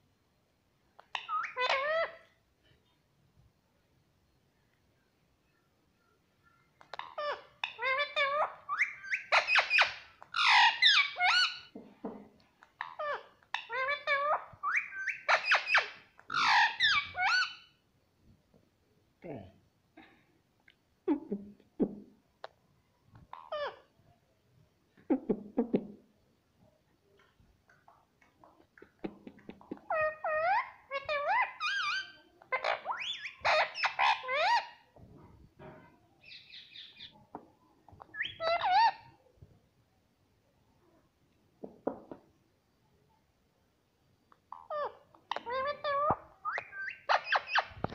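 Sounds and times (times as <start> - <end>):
parakeet chattering: 1.0 - 2.2, 6.9 - 11.7, 12.7 - 17.7, 28.5 - 34.8, 36.2 - 37.4, 38.0 - 39.1, 44.5 - 47.9.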